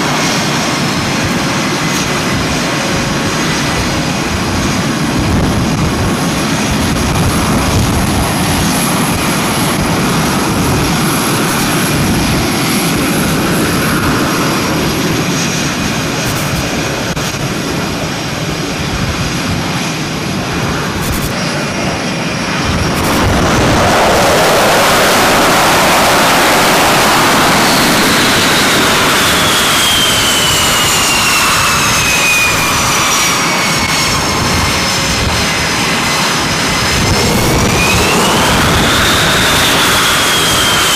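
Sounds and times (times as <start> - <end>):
jet engines roaring: 0.0 - 40.9
high whine falling in pitch: 22.5 - 28.1, 35.3 - 40.9.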